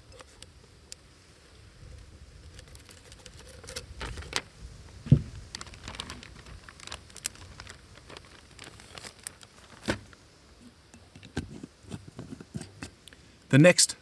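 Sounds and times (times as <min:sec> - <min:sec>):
plastic bags crinkling: 0:02.5 - 0:04.5, 0:05.4 - 0:10.2
dull thump: 0:05.0 - 0:05.4.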